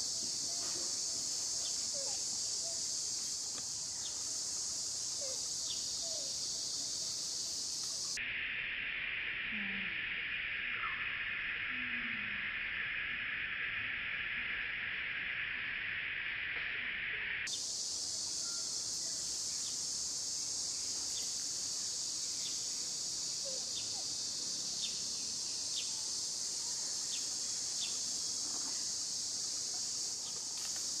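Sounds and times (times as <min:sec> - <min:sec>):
insects buzzing: 0:00.0 - 0:08.2, 0:17.5 - 0:31.0.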